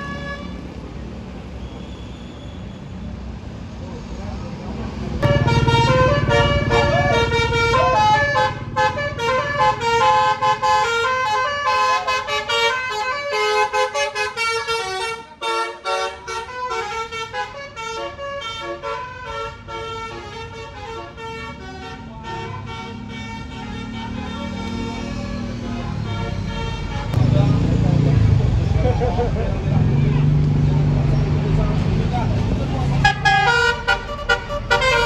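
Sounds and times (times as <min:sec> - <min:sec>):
bus engine rumble: 0:00.0 - 0:35.0
melody horn playing a tune: 0:05.2 - 0:19.1, 0:33.1 - 0:35.0.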